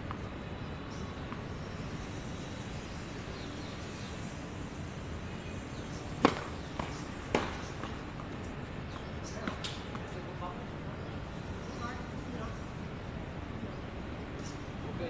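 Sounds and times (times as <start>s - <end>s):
steady background noise: 0.0s - 15.0s
racquet hitting tennis ball: 6.2s - 8.0s.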